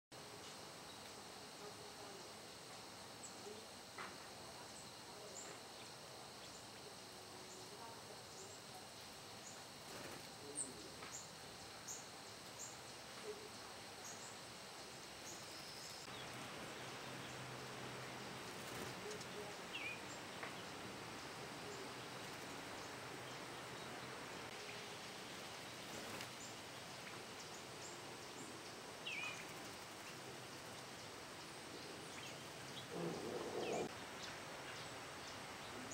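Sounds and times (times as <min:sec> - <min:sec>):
steady outdoor hiss: 0:00.1 - 0:35.9
lower bird chirps: 0:18.4 - 0:35.9.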